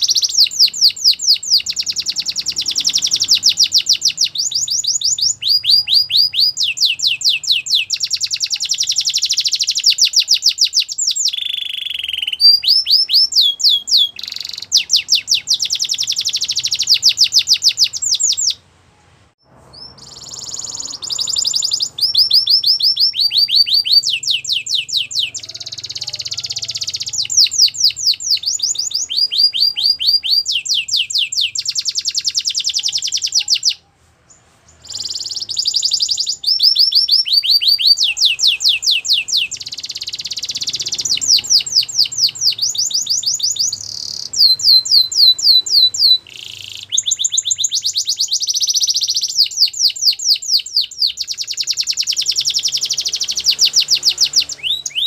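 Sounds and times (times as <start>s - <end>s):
canary singing trills: 0.0s - 55.0s.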